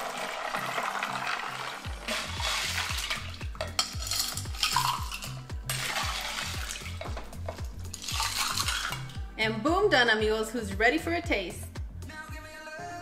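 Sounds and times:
ice clinking: 0.0 - 9.2
ladle stirring ice: 0.0 - 9.2
liquid sloshing: 0.0 - 9.2
background music with beat: 0.0 - 13.0.

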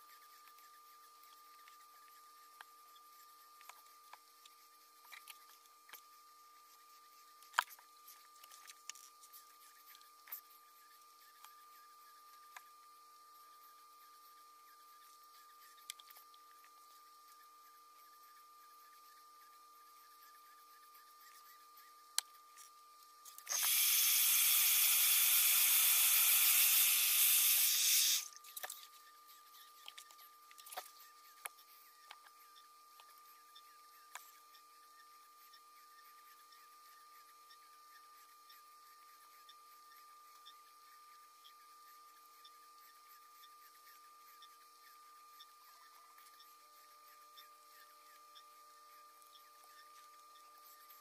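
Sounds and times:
steady high hum: 0.0 - 51.0
compressed air hissing from nozzle: 23.5 - 28.3.

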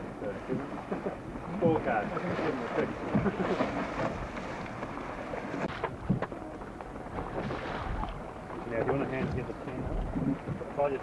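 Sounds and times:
water splashing against hull: 0.0 - 11.0
wind buffeting microphone: 7.2 - 11.0.

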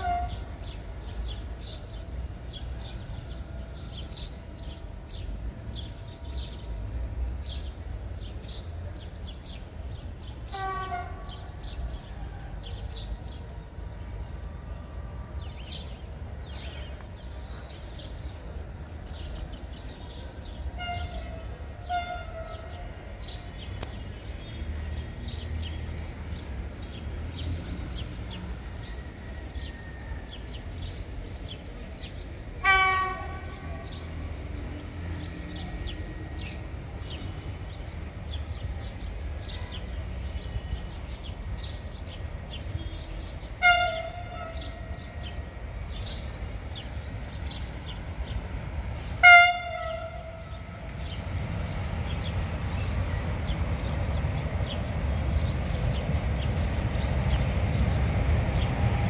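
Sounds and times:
distant train horn blasts: 0.0 - 0.8, 10.4 - 11.7, 20.7 - 23.4, 32.6 - 34.2, 42.8 - 45.4, 49.0 - 51.2
birds chirping: 0.0 - 59.0.

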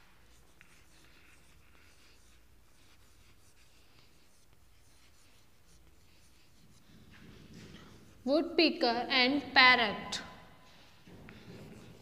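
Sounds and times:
chalk scratching on blackboard: 0.0 - 8.4, 10.9 - 12.0.

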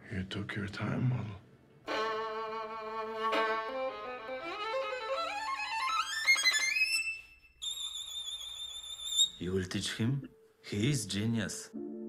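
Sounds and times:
solo violin ascending run: 1.9 - 7.3.

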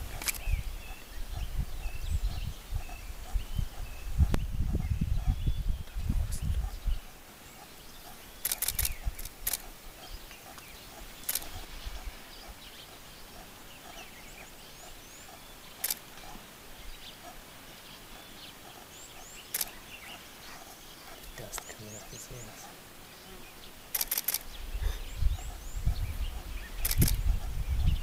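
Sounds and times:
sharp clicks: 0.0 - 0.5, 8.0 - 9.7, 11.2 - 11.6, 15.8 - 16.1, 19.5 - 19.8, 23.9 - 24.5, 26.8 - 27.2
small birds chirping: 0.0 - 28.0.

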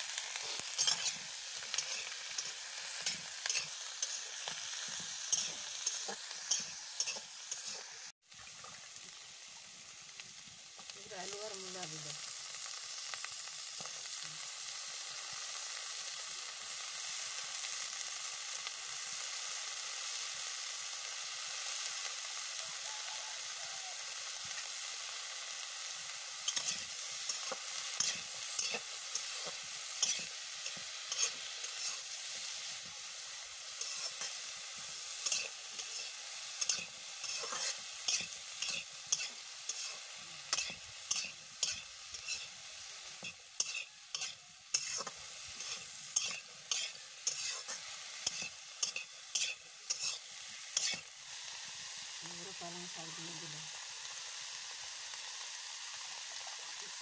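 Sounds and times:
vegetables sizzling in oil: 0.0 - 57.0
spatula scraping pan: 0.3 - 7.9, 26.4 - 32.2, 33.7 - 34.4, 35.1 - 42.6, 43.2 - 51.1.

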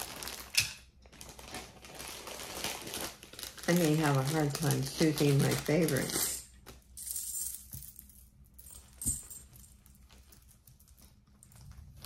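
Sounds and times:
packaging rustling: 0.0 - 6.9
small metal pieces clinking: 7.0 - 10.5.

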